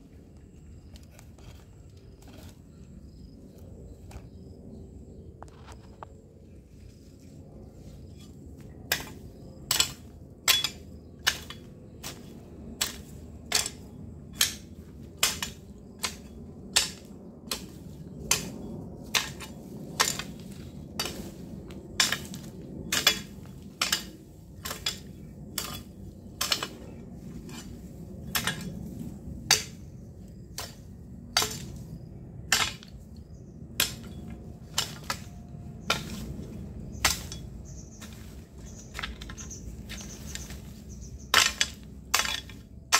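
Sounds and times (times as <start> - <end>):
hoe blade striking soil and stones: 8.6 - 42.9.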